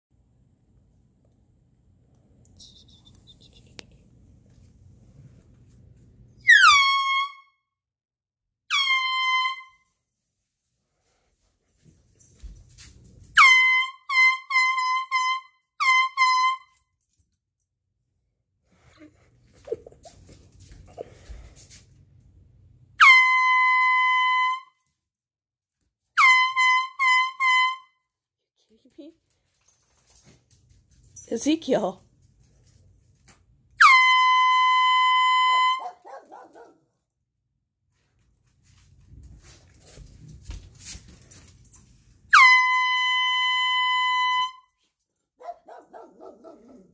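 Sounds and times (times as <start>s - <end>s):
air horn blasts: 33.8s - 36.0s, 42.3s - 44.7s.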